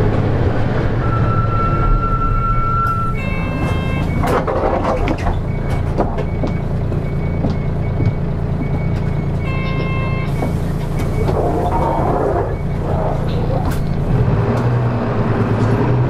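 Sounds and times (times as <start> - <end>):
bus diesel engine running: 0.0 - 16.0
faint high beeps: 1.0 - 4.3, 5.4 - 13.6.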